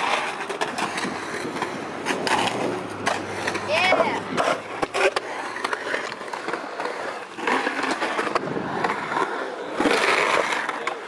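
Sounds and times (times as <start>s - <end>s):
skateboard clacking on coping: 0.0s - 11.0s
skateboard wheels rolling on concrete: 0.0s - 11.0s.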